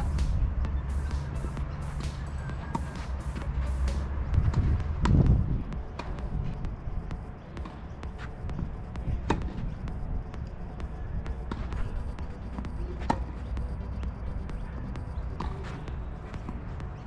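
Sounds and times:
steady low rumble: 0.0 - 17.0
tennis ball struck by racquets: 2.7 - 6.4, 9.2 - 9.6, 12.6 - 13.4, 15.3 - 16.6
ball bouncing on hard court: 15.3 - 15.8.

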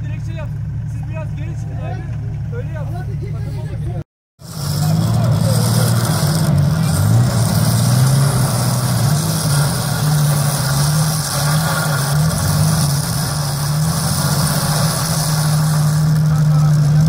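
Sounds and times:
truck engine revving under load: 3.6 - 17.0.

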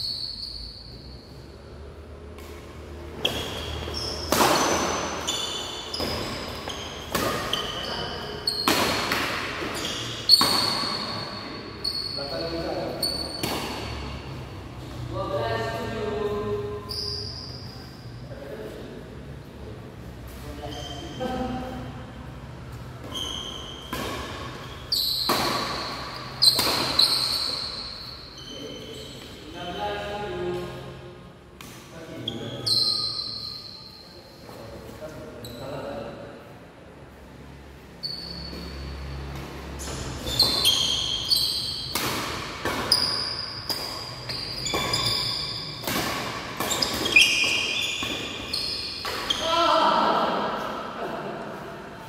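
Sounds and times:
high squeak: 0.0 - 1.5, 3.2 - 9.0, 9.6 - 13.8, 16.8 - 18.0, 20.6 - 21.4, 23.0 - 29.8, 32.2 - 34.4, 38.0 - 39.1, 39.8 - 42.0, 42.9 - 45.9, 46.6 - 49.6
racket hitting shuttlecock: 2.3 - 11.4, 13.1 - 14.2, 23.0 - 28.0, 38.5 - 50.8.

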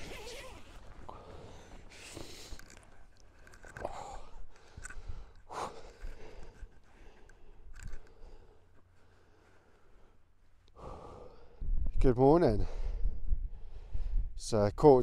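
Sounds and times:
tent fabric rustling: 0.0 - 3.1
wind rumble on microphone: 11.6 - 12.1, 12.7 - 15.0.

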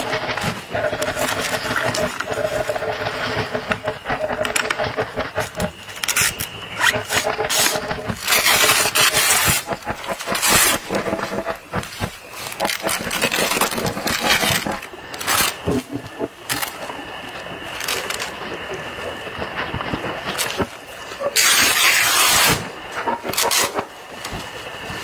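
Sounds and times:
tent zipper rasping: 5.4 - 15.5.

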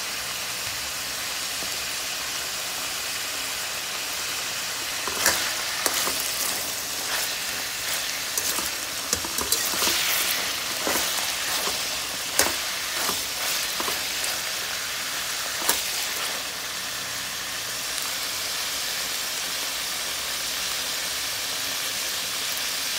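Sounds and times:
sausages sizzling in a pan: 0.0 - 22.9
metal spatula scraping a pan: 4.9 - 16.6.

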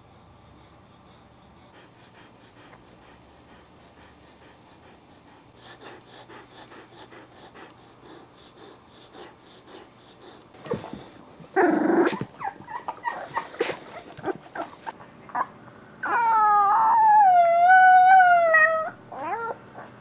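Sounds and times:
puppy snuffling: 5.6 - 15.5
puppy crying: 11.6 - 19.9
puppy howling: 11.6 - 19.9.

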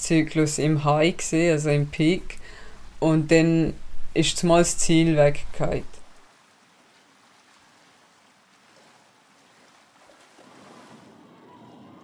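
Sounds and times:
pool water lapping: 4.9 - 11.3.

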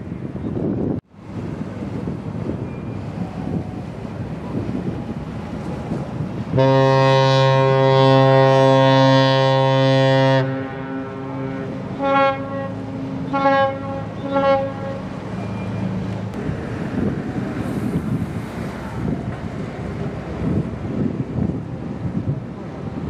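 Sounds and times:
ship's horn blasts: 6.4 - 16.2.

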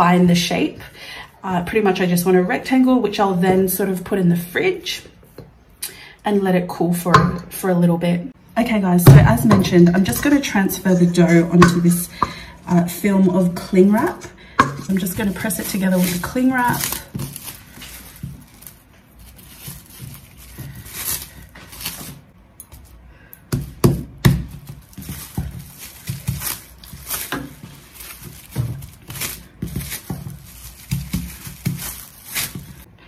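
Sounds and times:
cling wrap crinkling: 12.7 - 32.9
dough thumping on table: 23.5 - 32.9.

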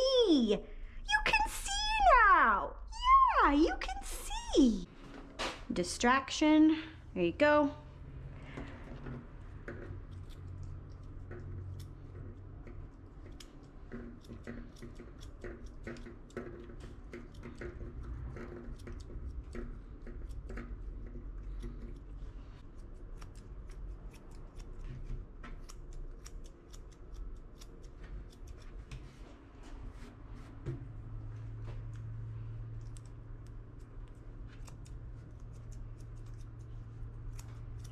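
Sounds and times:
scissors snipping hair: 9.9 - 29.0, 31.8 - 37.9.

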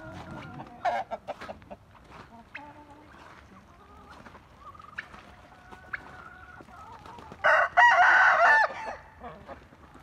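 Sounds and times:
hen clucking: 0.0 - 7.6
rooster crowing: 7.4 - 9.0.

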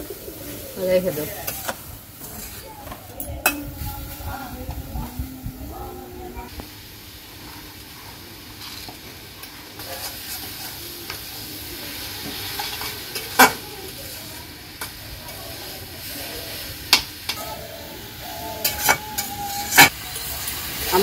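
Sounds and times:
greens sizzling in oil: 0.0 - 5.7, 6.5 - 21.0.

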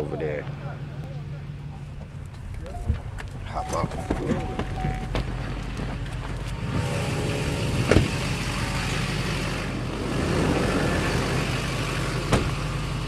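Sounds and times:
vehicle engine idling: 0.0 - 13.0
sharp thumps: 7.8 - 8.4.

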